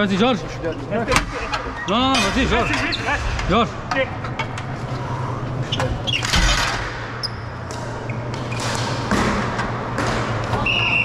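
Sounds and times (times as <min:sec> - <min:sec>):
steady low hum: 0:00.0 - 0:10.6.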